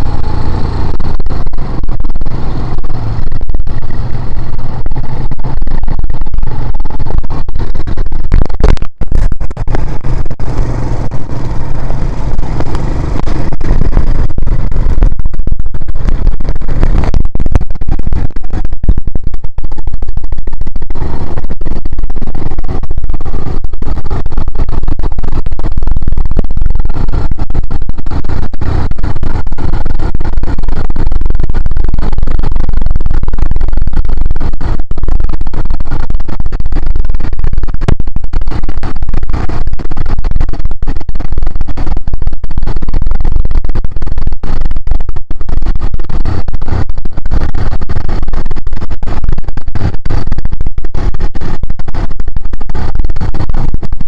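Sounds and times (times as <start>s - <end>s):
quad bike engine running: 0.0s - 5.2s, 6.5s - 6.7s, 9.4s - 15.0s, 16.0s - 17.1s, 27.0s - 29.8s
wind noise on microphone: 0.0s - 54.0s.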